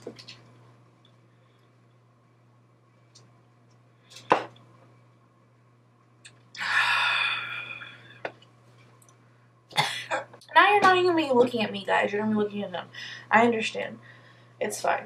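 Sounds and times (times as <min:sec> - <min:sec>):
woman exhaling: 0:06.6 - 0:08.2.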